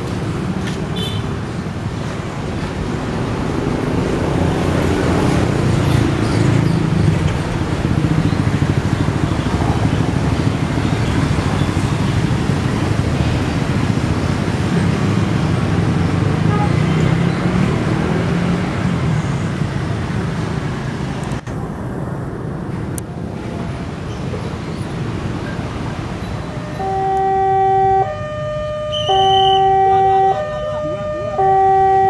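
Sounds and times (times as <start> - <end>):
road traffic rumble: 0.0 - 32.0.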